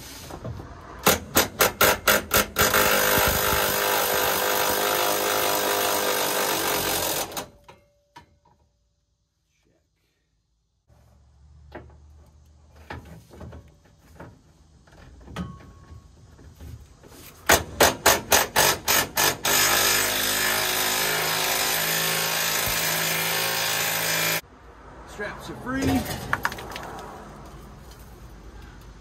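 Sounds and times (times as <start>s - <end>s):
power tool bursts: 1.4s - 7.6s.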